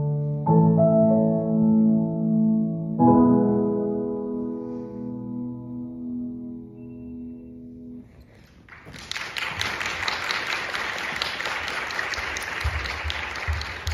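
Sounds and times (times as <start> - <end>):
audience applause: 8.4 - 13.9.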